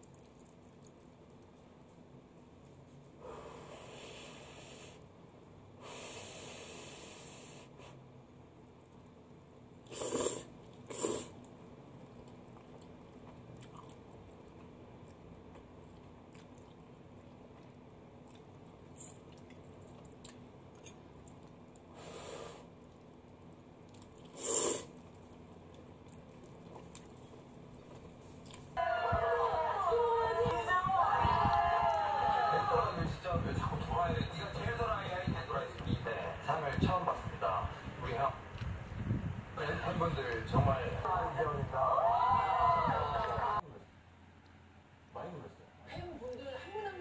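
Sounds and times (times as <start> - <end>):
chewing: 0.0 - 2.0, 9.8 - 22.0, 22.6 - 28.8
person slurping noodles: 9.8 - 11.4, 24.2 - 25.0.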